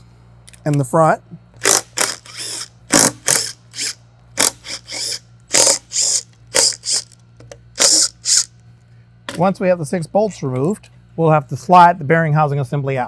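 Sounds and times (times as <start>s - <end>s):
impact driver whirring: 1.6s - 8.5s.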